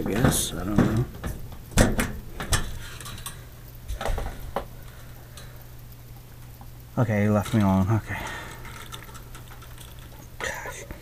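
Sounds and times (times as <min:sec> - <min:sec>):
hand tools clicking and knocking: 0:00.0 - 0:03.4
steady low hum: 0:00.0 - 0:11.0.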